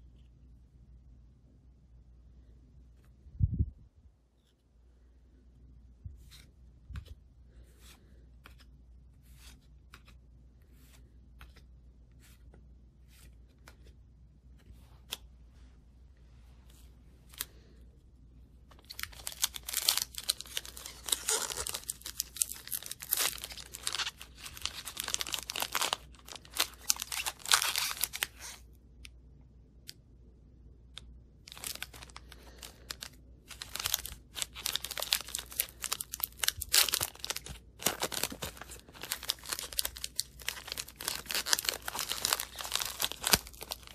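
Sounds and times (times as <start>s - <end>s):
foil wrapper crinkling and tearing: 18.8s - 28.6s, 31.5s - 43.9s.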